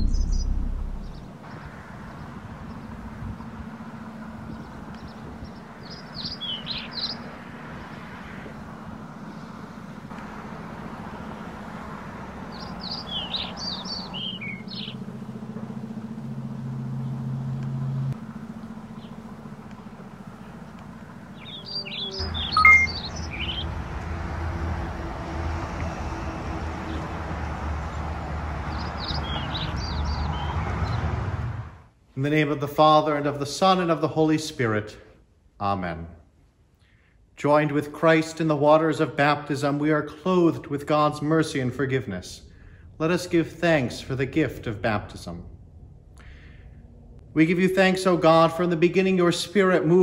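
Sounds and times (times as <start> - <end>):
songbird chirping: 0.0 - 23.8, 28.6 - 31.1.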